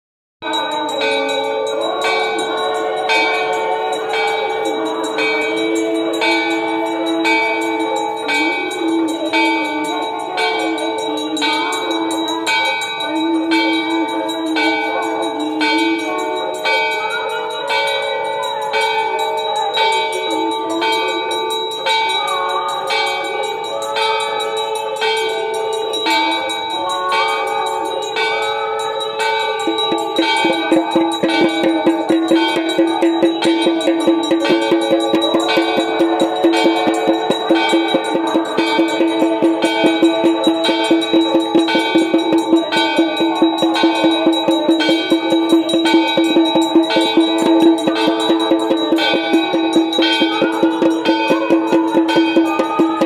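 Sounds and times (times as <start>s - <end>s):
temple bells ringing: 0.4s - 53.0s
voices chanting: 0.4s - 53.0s.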